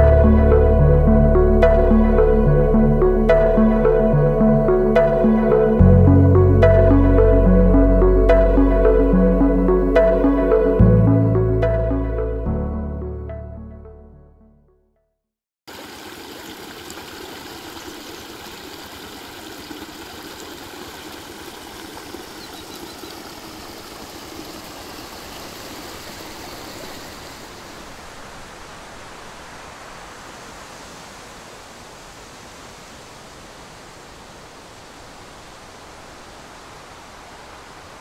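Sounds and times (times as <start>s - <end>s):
background music: 0.0s - 14.7s
flowing water rushing: 15.7s - 38.0s.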